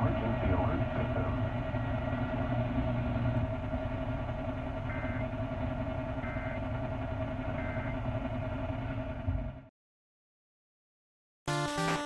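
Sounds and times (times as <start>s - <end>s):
car radio hum and rumble: 0.0s - 9.7s.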